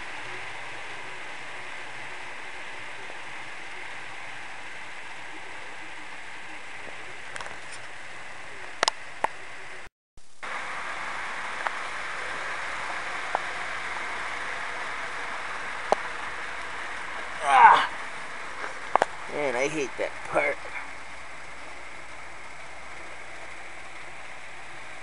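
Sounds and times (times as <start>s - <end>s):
model train whirring on track: 0.0s - 25.0s.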